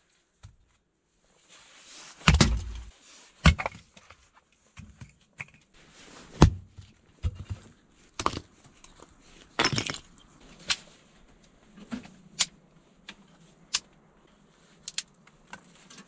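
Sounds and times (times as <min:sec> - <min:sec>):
firewood pieces knocking together: 0:02.3 - 0:03.8, 0:07.2 - 0:09.0, 0:09.6 - 0:10.3.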